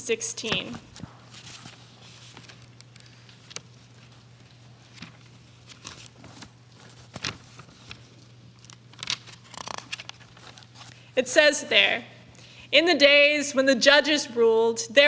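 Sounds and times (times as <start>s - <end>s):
low electrical hum: 0.0s - 15.0s
paper pages rustling: 0.4s - 11.0s.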